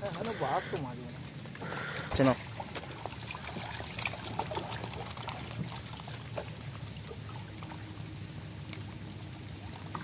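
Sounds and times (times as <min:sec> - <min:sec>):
water sloshing and trickling: 0:00.0 - 0:10.0
fish splashing at surface: 0:01.7 - 0:07.9.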